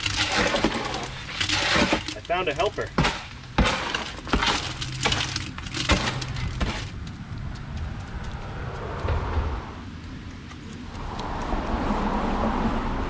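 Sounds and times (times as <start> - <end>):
concrete pouring from wheelbarrow: 0.0 - 7.0.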